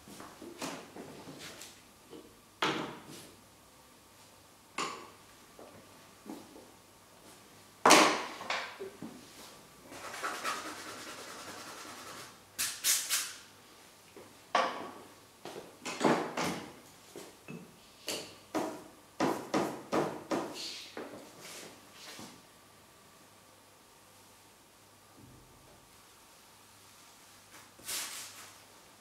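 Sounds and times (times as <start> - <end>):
scratchy rubbing: 9.9 - 12.3.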